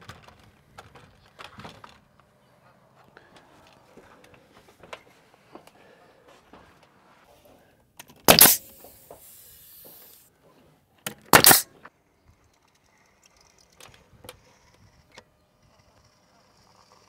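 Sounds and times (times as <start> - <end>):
nail gun bang: 8.2 - 10.0, 11.0 - 11.7
air hiss: 8.3 - 10.3, 11.4 - 11.6.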